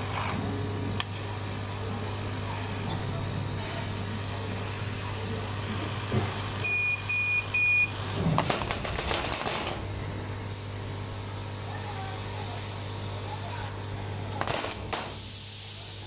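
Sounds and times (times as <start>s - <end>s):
laser cutter humming: 0.0s - 16.0s
short electronic beeps: 6.6s - 8.0s.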